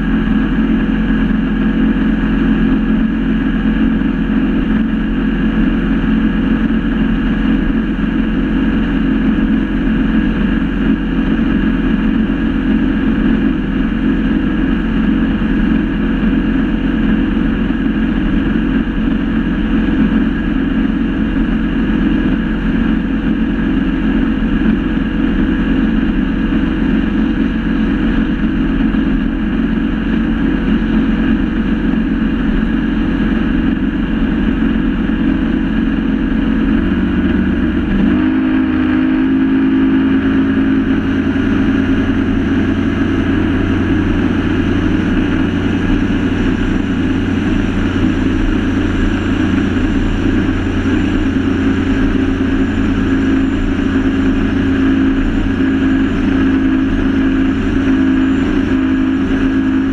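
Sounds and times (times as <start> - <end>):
rush of wind and water: 0.0 - 59.9
speedboat engines running: 0.0 - 59.9.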